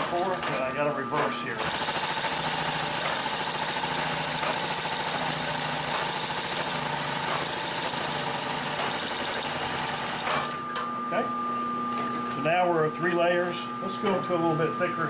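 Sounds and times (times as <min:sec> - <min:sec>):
industrial sewing machine running: 0:00.0 - 0:10.7.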